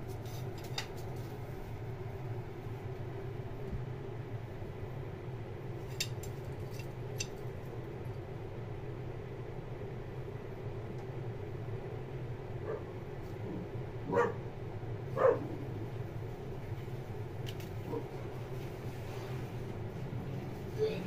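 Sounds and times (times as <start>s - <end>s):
low indoor hum: 0.0s - 21.0s.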